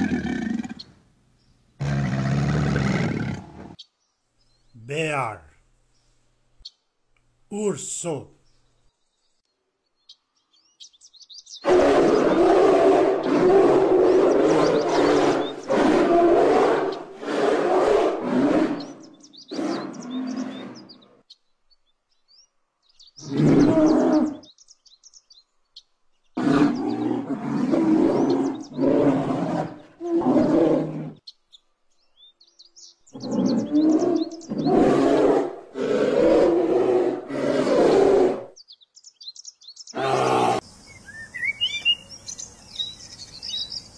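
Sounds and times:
faint bird chirps: 0:38.6 - 0:43.9
bear calling: 0:39.9 - 0:40.6.

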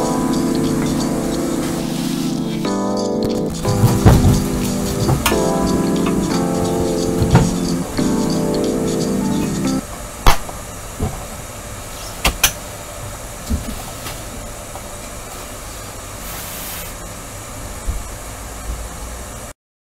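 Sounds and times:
steady hiss: 0:00.0 - 0:19.1
metal panel clicks and knocks: 0:03.6 - 0:05.4.

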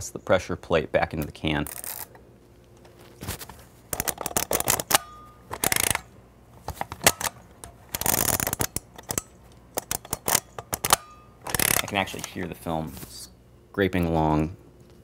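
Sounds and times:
film scraping in camera: 0:01.6 - 0:12.5
camera shutter and advance clicks: 0:04.0 - 0:06.1, 0:07.0 - 0:09.2, 0:09.8 - 0:12.3.

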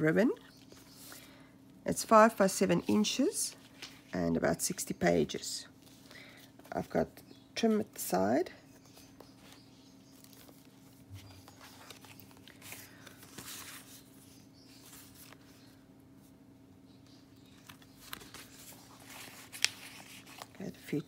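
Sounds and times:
paper and card rustling: 0:02.5 - 0:04.9, 0:08.8 - 0:15.7, 0:17.6 - 0:21.0.

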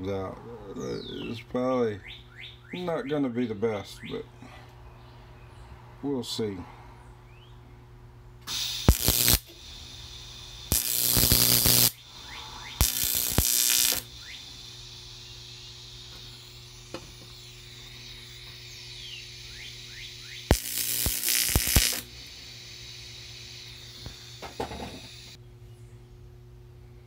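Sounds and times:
welding arc crackling hiss: 0:08.5 - 0:25.4.

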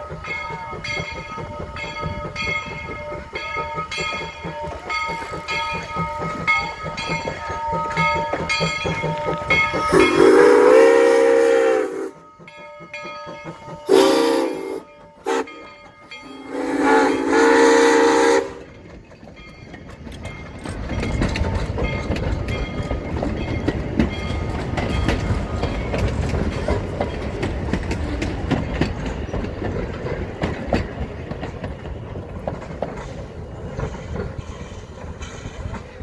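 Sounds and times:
train cars rumbling past: 0:00.0 - 0:36.0
wheels clicking over rail joints: 0:00.0 - 0:36.0
steam locomotive whistle: 0:09.5 - 0:12.5, 0:13.8 - 0:15.7, 0:16.3 - 0:18.7.

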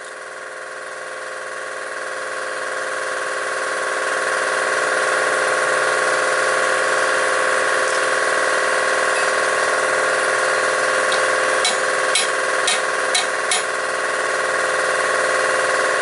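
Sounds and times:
steady mechanical hum: 0:00.0 - 0:16.0
hammer tapping on metal: 0:11.1 - 0:13.7.

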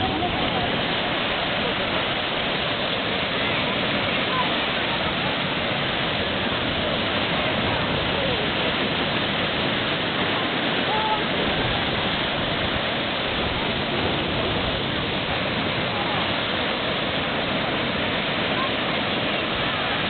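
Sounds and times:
small waves breaking on shore: 0:00.0 - 0:20.0.

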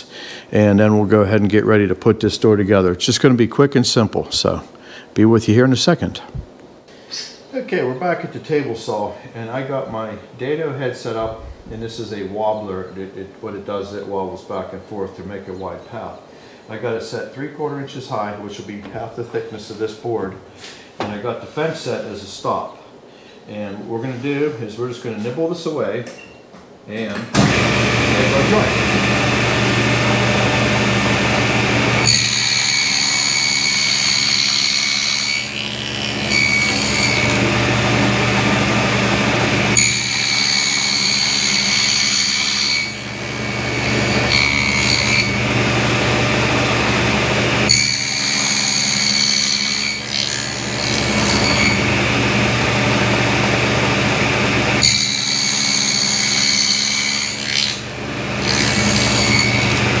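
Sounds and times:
saw blade whining through wood: 0:27.4 - 1:00.0
table saw motor hum: 0:27.4 - 1:00.0.

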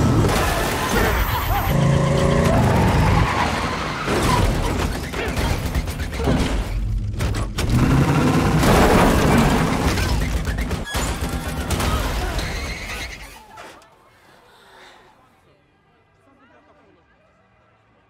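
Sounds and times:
vehicle noise: 0:00.0 - 0:05.0.

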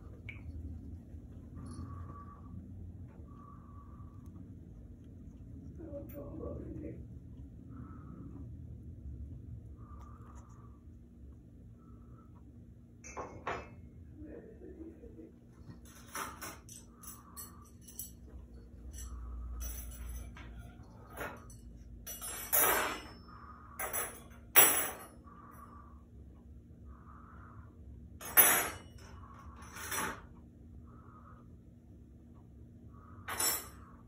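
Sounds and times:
dishes clattering in a sink: 0:13.1 - 0:13.8.

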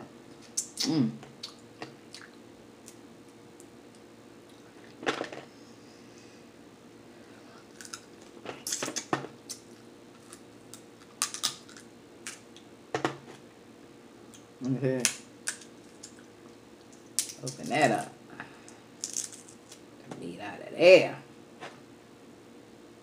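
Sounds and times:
faint steady hum: 0:00.0 - 0:23.0
crab shells cracking: 0:07.7 - 0:12.7, 0:15.0 - 0:16.2, 0:16.8 - 0:17.7, 0:19.0 - 0:19.8.

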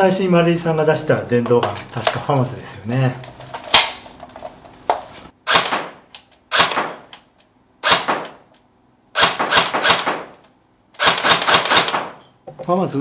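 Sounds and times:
airsoft gun single shots: 0:05.4 - 0:07.1, 0:07.8 - 0:08.4, 0:09.2 - 0:10.4, 0:11.0 - 0:12.2.

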